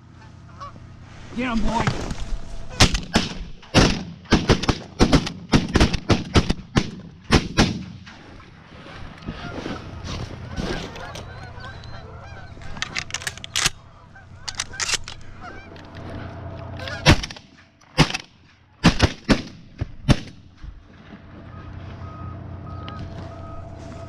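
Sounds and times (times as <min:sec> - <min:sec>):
geese honking: 0:00.0 - 0:03.1, 0:09.1 - 0:17.9, 0:21.2 - 0:24.0
shotgun blasts: 0:02.8 - 0:08.1, 0:17.0 - 0:20.5.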